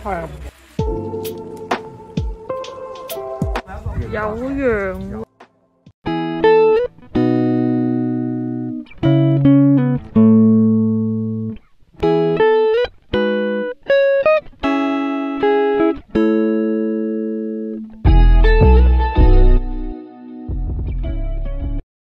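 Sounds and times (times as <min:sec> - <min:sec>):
guitar plucking slow chords: 0:00.8 - 0:03.7, 0:06.0 - 0:21.8.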